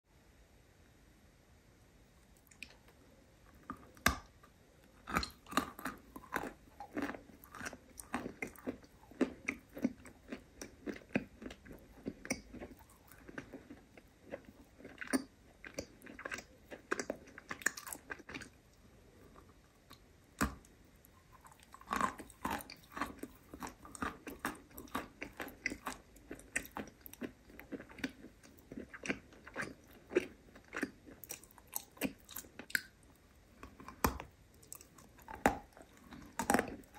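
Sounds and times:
chewing crunchy chalk: 0:05.0 - 0:18.6, 0:20.4 - 0:33.0, 0:33.6 - 0:36.9.

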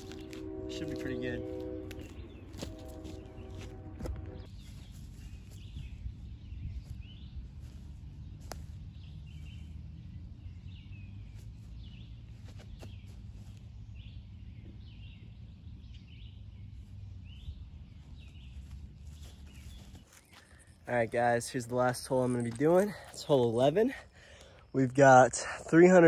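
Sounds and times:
wind rumble on microphone: 0:00.0 - 0:11.2, 0:11.8 - 0:20.1
small birds chirping: 0:04.4 - 0:25.8.

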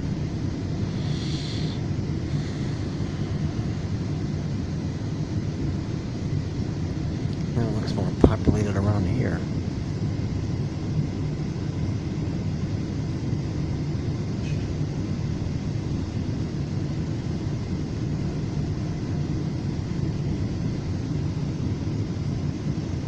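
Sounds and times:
train car rumble and hum: 0:00.0 - 0:06.3.

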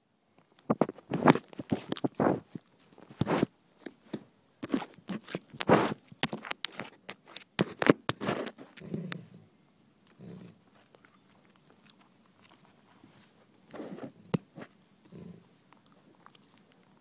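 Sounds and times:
puppy scuffing phone microphone: 0:00.7 - 0:08.8, 0:12.9 - 0:14.8.

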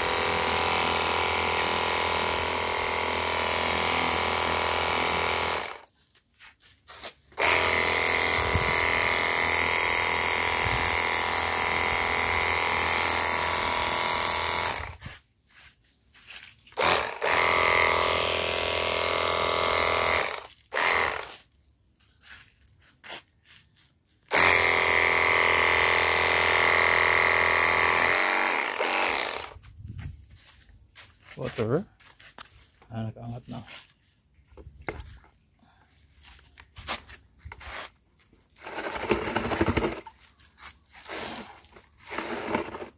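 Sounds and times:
pressure washer motor whining: 0:00.0 - 0:05.8, 0:07.4 - 0:15.0, 0:16.8 - 0:21.4, 0:24.3 - 0:29.6, 0:41.0 - 0:42.9.

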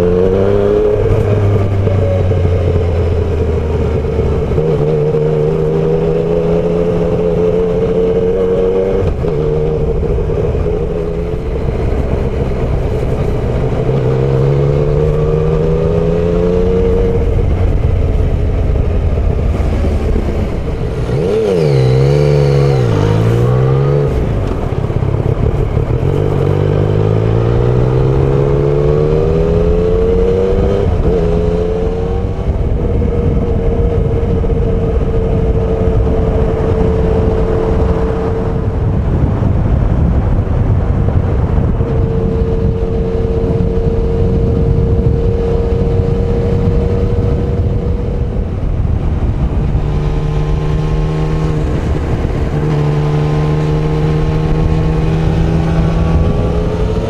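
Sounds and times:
motorcycle engine accelerating: 0:00.0 - 0:57.0
wind and road noise: 0:00.0 - 0:57.0.

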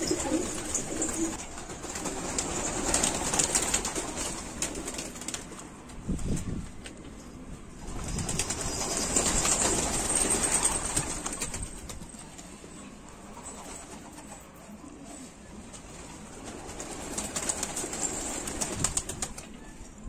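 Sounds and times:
pigeon wings flapping: 0:00.0 - 0:07.0, 0:07.8 - 0:12.6, 0:15.7 - 0:19.6.

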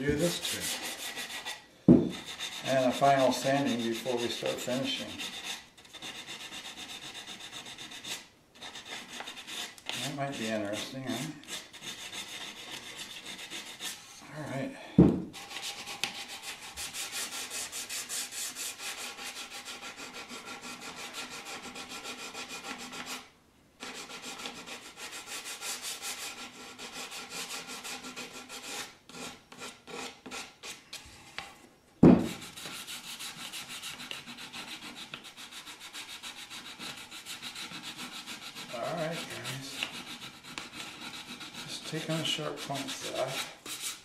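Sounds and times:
sandpaper rubbing on wood: 0:00.0 - 0:14.0, 0:15.4 - 0:30.8, 0:32.2 - 0:44.0
sharp knock: 0:01.9 - 0:02.2, 0:15.0 - 0:15.3, 0:32.0 - 0:32.4.

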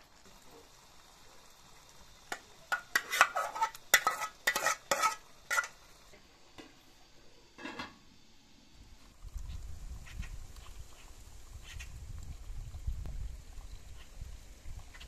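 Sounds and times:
metal lid clanking onto pan: 0:02.3 - 0:05.8
metal spoon scraping metal bowl: 0:02.7 - 0:05.8.

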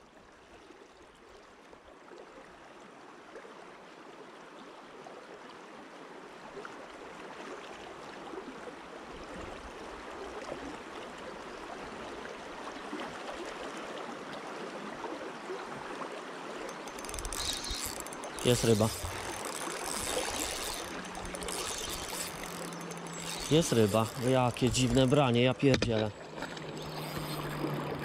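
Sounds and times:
river water rushing: 0:16.4 - 0:28.0.

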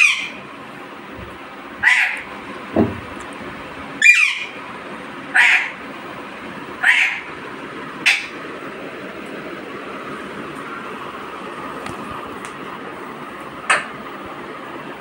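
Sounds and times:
bird harsh squawking call: 0:00.0 - 0:00.4, 0:01.8 - 0:02.2, 0:04.0 - 0:04.6, 0:05.3 - 0:05.8, 0:06.8 - 0:07.3.

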